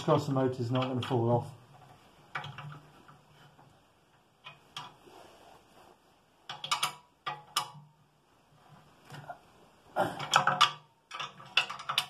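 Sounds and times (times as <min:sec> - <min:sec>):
spanner clicking on metal nuts: 0:06.5 - 0:07.9, 0:10.2 - 0:12.0.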